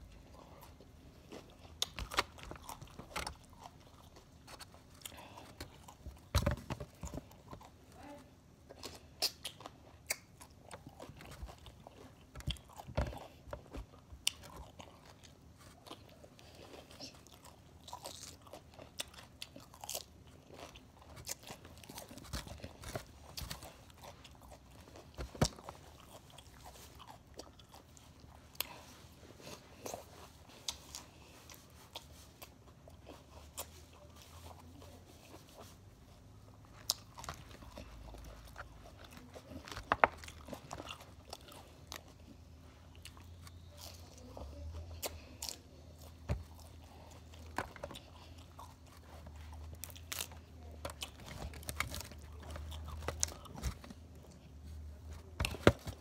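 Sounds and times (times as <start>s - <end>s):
crunchy food being chewed: 0.0s - 56.0s.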